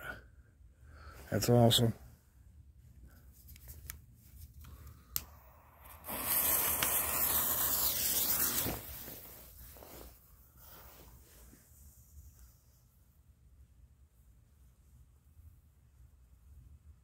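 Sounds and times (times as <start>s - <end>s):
lit fuse hissing: 4.7s - 9.9s.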